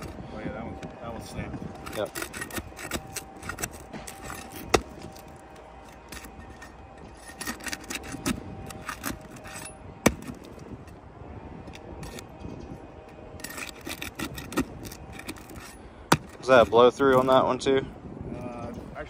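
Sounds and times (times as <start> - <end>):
pry tool scraping shingles: 1.6 - 10.8, 11.7 - 12.3, 13.4 - 17.4
shingles cracking: 1.7 - 10.7, 13.3 - 17.4.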